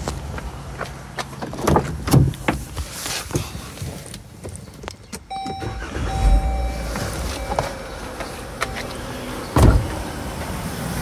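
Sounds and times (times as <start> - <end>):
electronic chime: 5.3 - 9.3
car engine cranking and starting: 5.3 - 11.0.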